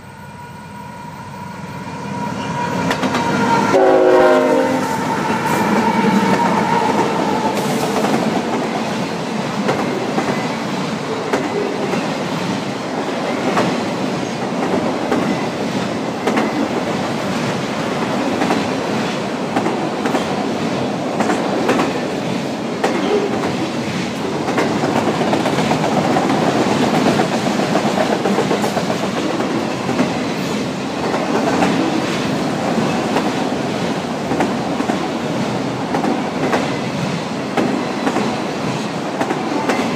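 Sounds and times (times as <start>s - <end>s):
freight train rolling past: 0.0s - 39.9s
train horn blast: 2.3s - 7.6s.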